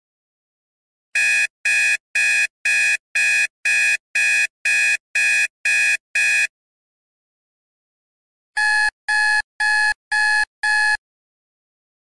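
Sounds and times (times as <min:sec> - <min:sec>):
alarm clock beeping: 0:08.6 - 0:11.0.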